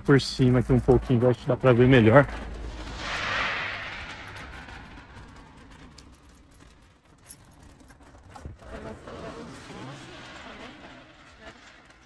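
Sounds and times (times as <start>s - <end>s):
car passing by: 1.6s - 6.8s, 8.7s - 12.0s.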